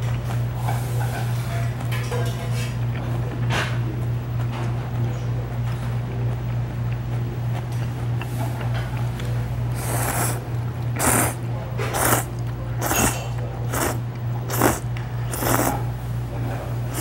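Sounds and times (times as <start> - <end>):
steady low hum: 0.0 - 17.0
person slurping noodles: 9.7 - 15.8.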